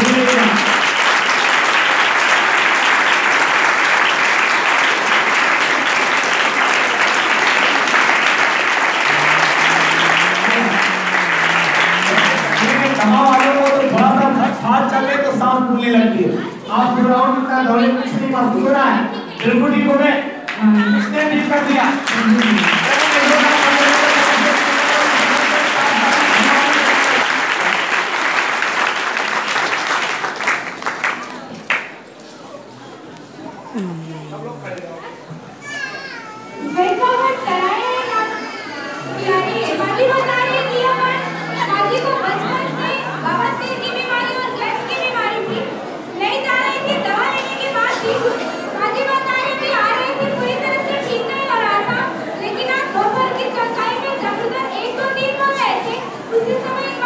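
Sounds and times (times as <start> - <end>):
crowd applauding: 0.0 - 15.1, 20.5 - 32.4, 36.6 - 46.0
person speaking: 9.0 - 14.2, 33.6 - 35.2.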